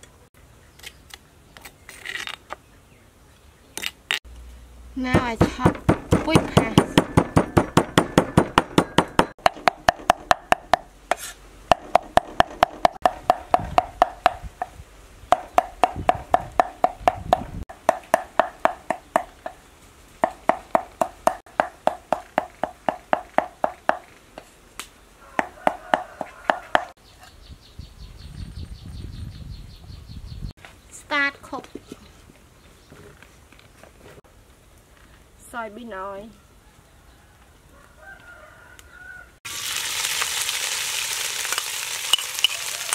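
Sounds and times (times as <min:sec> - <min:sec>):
cleaver chopping on wooden board: 0:05.1 - 0:14.7, 0:15.3 - 0:19.6, 0:20.2 - 0:24.1, 0:25.4 - 0:26.9.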